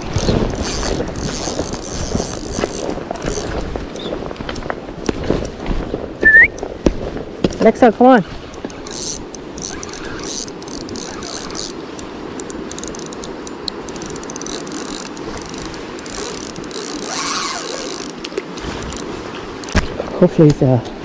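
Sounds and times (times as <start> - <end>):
fishing reel whirring and ticking: 0.0 - 3.6, 8.5 - 19.8.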